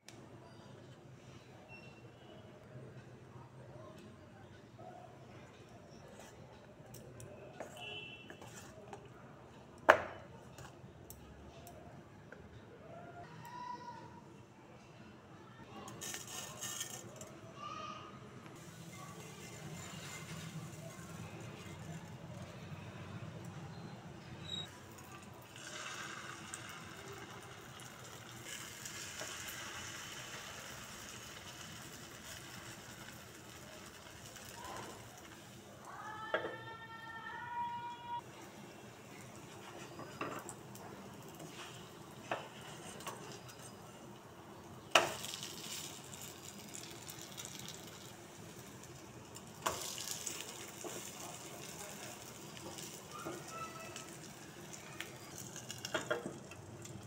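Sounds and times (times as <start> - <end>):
spoon stirring thick batter: 7.6 - 9.1
oil sizzling in a frying pan: 18.6 - 22.4, 24.8 - 35.9, 38.4 - 57.0.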